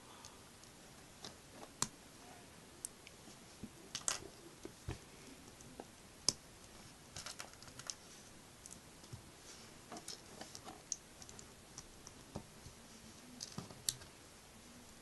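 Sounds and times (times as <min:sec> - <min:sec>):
plastic pieces clicking together: 0:03.9 - 0:04.2, 0:07.2 - 0:08.0.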